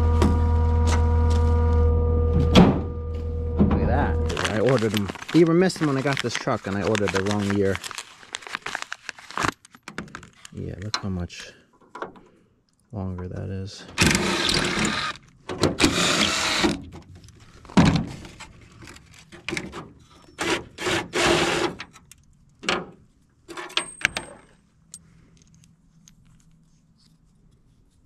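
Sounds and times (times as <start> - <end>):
faint clicks of parts handled: 9.0 - 11.1, 24.5 - 28.0
impact driver bursts: 14.0 - 15.2, 15.8 - 16.8, 20.4 - 21.8.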